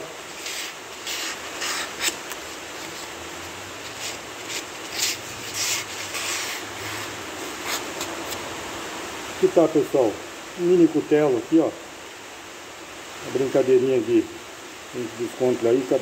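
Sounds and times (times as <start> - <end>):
blade slicing paper: 0.3 - 3.1, 3.9 - 8.4.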